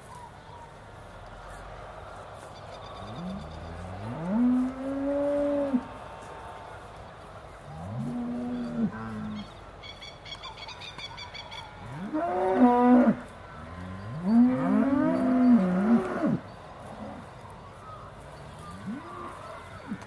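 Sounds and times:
cows mooing: 11.8s - 16.4s, 18.5s - 20.0s.

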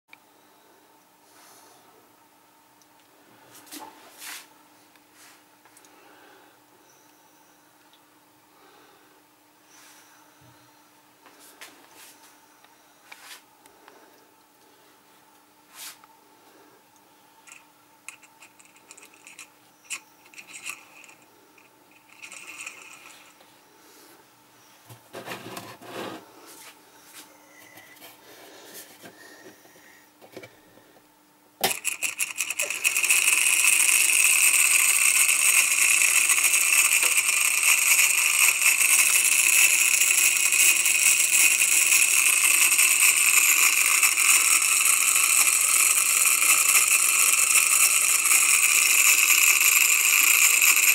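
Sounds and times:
motor rattling buzz: 17.5s - 23.4s, 31.6s - 50.9s.

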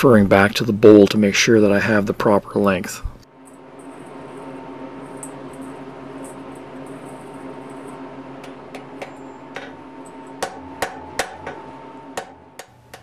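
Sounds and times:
anvil ringing: 8.8s - 13.0s
hammer striking iron on anvil: 10.4s - 13.0s.

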